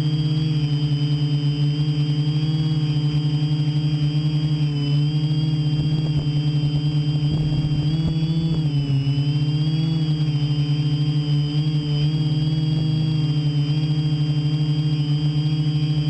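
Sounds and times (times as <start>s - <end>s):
drone propellers whirring: 0.0s - 16.0s.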